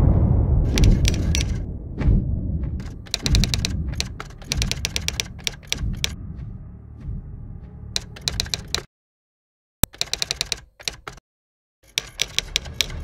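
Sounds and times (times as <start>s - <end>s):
low rumble: 0.0s - 8.0s
typewriter clicks: 0.7s - 1.6s, 2.8s - 6.2s, 8.0s - 8.9s, 9.8s - 11.2s, 11.9s - 13.0s.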